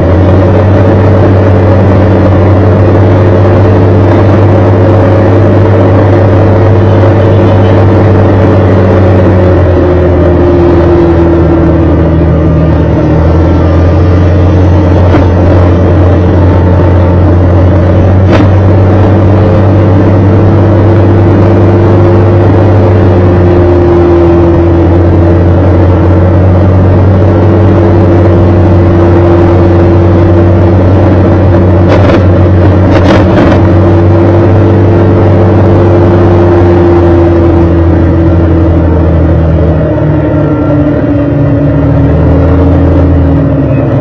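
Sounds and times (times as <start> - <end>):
road noise: 0.0 - 44.0
vehicle engine humming: 0.0 - 44.0.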